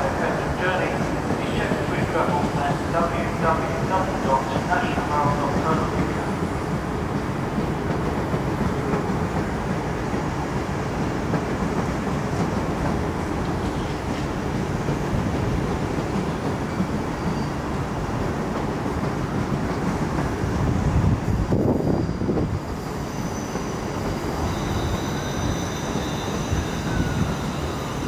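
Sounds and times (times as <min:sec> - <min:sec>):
train wheels rumbling on rail: 0:00.0 - 0:28.0
high-pitched wheel squeals: 0:24.4 - 0:28.0.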